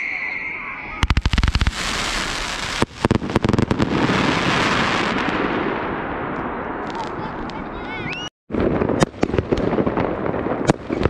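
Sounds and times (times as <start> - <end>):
firework crackle: 1.0 - 5.8
firework bangs: 1.0 - 7.7, 8.5 - 11.0.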